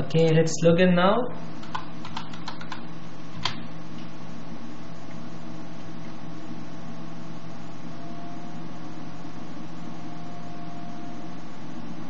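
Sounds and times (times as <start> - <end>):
low electrical hum: 0.0 - 12.0
faint steady tone: 4.2 - 12.0.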